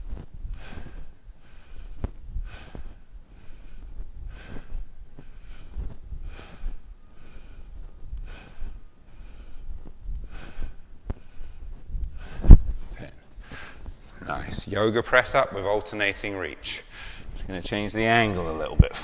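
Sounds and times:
low dull thumps: 0.0s - 14.1s
man breathing rhythmically: 0.0s - 14.1s, 16.7s - 17.4s.

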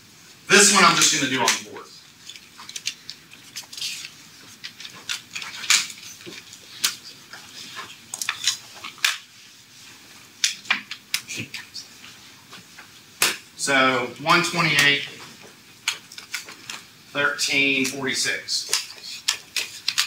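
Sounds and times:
chalk tapping and scratching on board: 18.6s - 20.0s.

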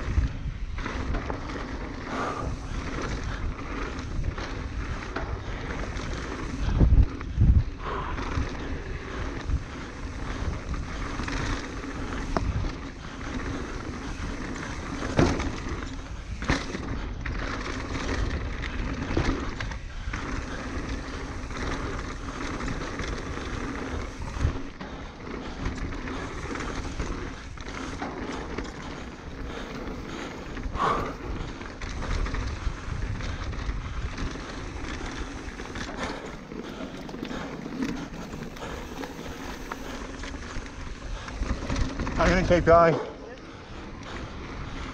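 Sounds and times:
bike rattling over rough ground: 0.0s - 44.9s
bike tyres rolling over dirt: 0.0s - 44.9s
wind on microphone: 2.0s - 16.5s, 28.7s - 42.6s.

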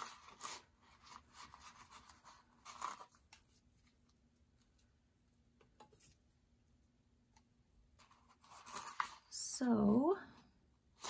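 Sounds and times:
paper stickers rustling: 0.0s - 4.8s.

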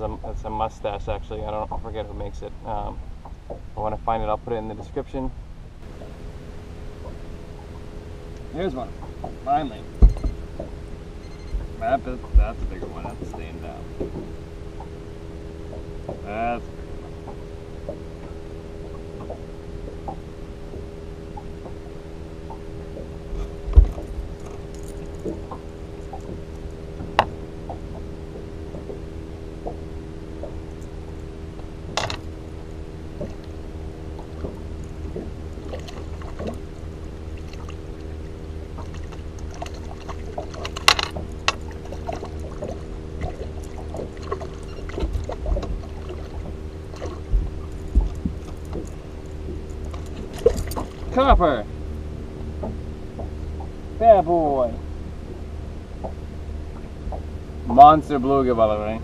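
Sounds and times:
low rumble: 0.0s - 59.0s
electric trolling motor hum: 5.6s - 59.0s
sharp knocks on boat: 7.0s - 15.0s, 15.6s - 32.4s, 33.1s - 51.8s, 52.4s - 53.8s.

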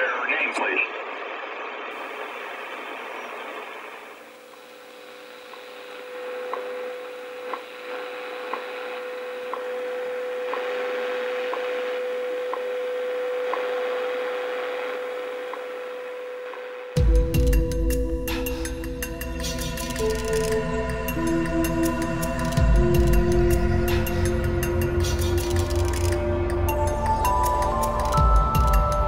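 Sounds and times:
steady radio tone: 0.0s - 17.0s
radio hiss and static: 0.0s - 17.1s.

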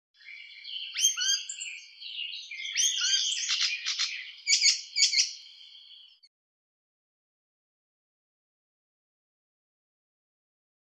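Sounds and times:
warbler singing: 0.2s - 6.3s.

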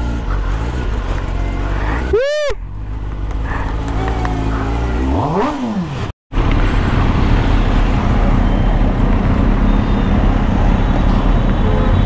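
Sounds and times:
motorcycle engine revving: 0.0s - 6.8s
road noise: 0.0s - 12.0s
steady engine drone: 0.0s - 12.0s.

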